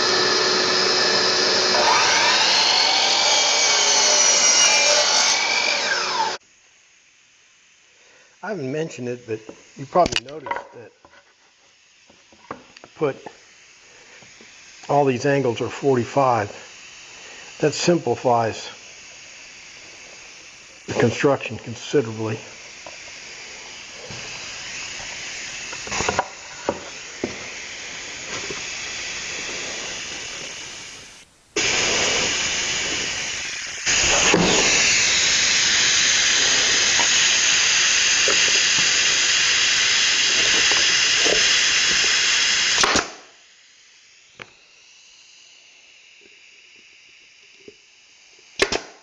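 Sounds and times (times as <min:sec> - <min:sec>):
compressed air hissing: 0:12.8 - 0:43.0
nail gun shots: 0:42.8 - 0:43.3, 0:48.6 - 0:49.0.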